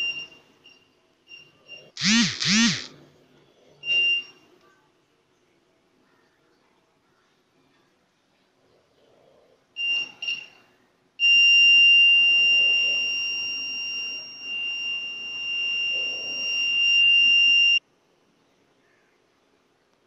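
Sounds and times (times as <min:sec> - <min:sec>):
short high beeps: 0:01.3 - 0:02.9
high-pitched alarm buzzer tone: 0:02.0 - 0:02.9, 0:11.2 - 0:17.8.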